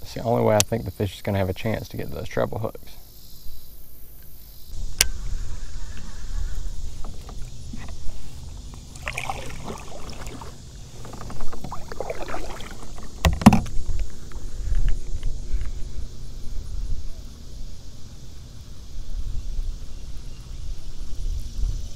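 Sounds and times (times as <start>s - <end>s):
paddle splashing through water: 6.8s - 14.3s.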